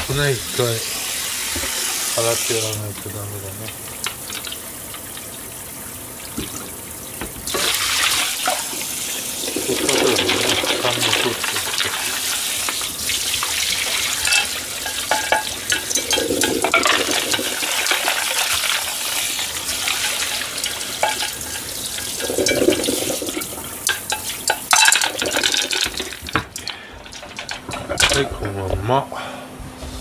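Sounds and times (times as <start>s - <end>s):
tap water splashing over shells: 3.0s - 5.5s, 6.3s - 8.9s, 9.5s - 28.2s
shells and strainer clinking: 14.2s - 17.9s.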